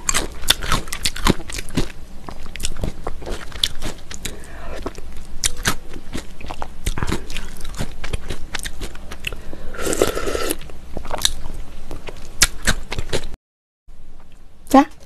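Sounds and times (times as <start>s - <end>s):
close chewing and biting: 0.0s - 13.4s
slurp from a spoon: 9.6s - 10.6s.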